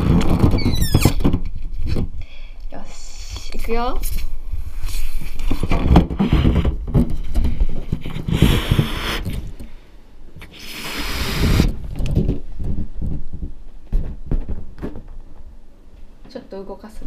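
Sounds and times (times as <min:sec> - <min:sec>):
rubber balloon rubbing on camera: 0:00.0 - 0:01.4, 0:03.7 - 0:09.6, 0:10.4 - 0:13.5
rushes of air inflating balloon: 0:04.8 - 0:06.8, 0:08.0 - 0:09.6, 0:10.4 - 0:11.9.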